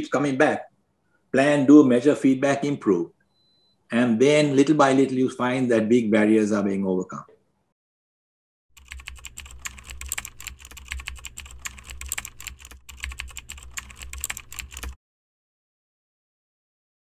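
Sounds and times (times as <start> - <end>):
keyboard key clicks: 8.8 - 15.0.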